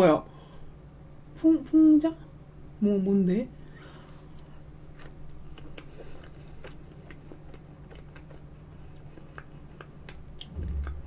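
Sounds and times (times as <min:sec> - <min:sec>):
steady low hum: 0:00.0 - 0:11.0
lip and tongue clicks: 0:03.7 - 0:10.5
wet chewing mouth sounds: 0:03.7 - 0:11.0.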